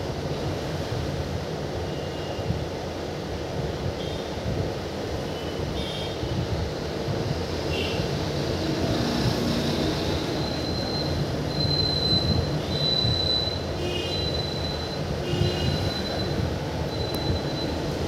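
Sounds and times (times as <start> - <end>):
train rumbling on rails: 0.0 - 18.0
high wheel squeal: 9.8 - 18.0.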